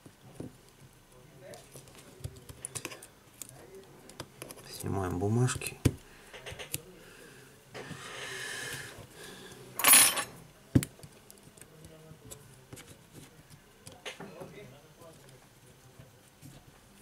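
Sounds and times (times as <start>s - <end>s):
small parts clicking and tapping: 1.5s - 4.9s, 5.5s - 6.9s.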